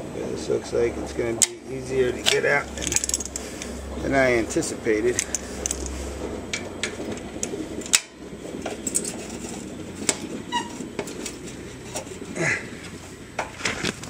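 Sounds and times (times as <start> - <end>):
short squeak: 10.4 - 10.9.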